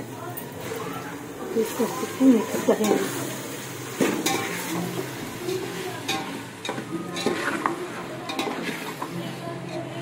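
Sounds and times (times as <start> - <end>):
food sizzling in pan: 0.0 - 10.0
spoon stirring and scraping in pan: 2.4 - 10.0.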